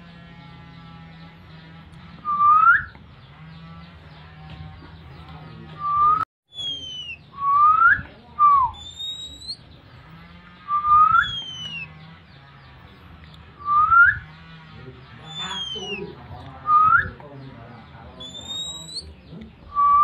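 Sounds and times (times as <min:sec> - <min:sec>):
bird whistled calls: 0:02.2 - 0:03.0, 0:05.8 - 0:09.7, 0:10.7 - 0:11.9, 0:13.6 - 0:14.3, 0:15.2 - 0:17.2, 0:18.2 - 0:19.1, 0:19.7 - 0:20.0.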